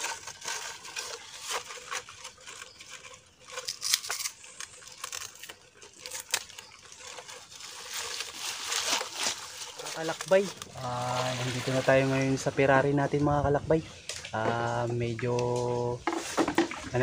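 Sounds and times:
dry leaves tearing and crackling: 0.0 - 12.4.

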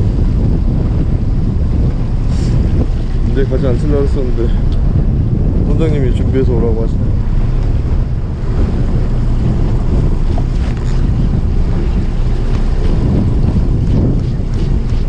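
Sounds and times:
choppy sea washing: 0.0 - 15.0
wind buffeting microphone: 0.0 - 15.0.

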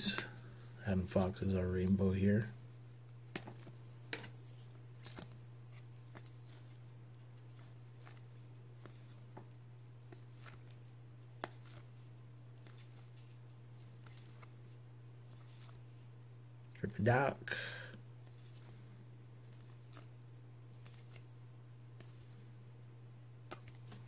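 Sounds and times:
steady low hum: 0.0 - 24.0
cards clicking and sliding: 23.4 - 24.0.

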